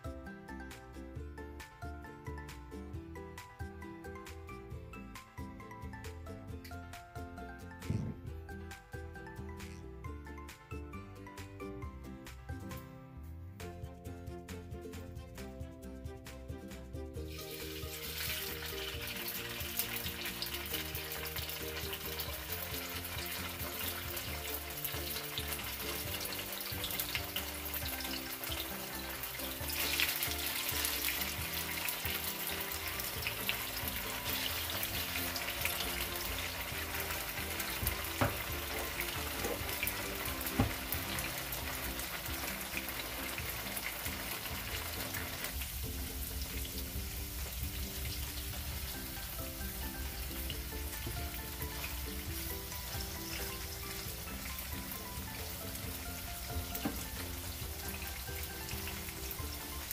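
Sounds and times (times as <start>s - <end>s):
background music: 0.0s - 59.9s
tofu sizzling in hot oil: 17.2s - 59.9s.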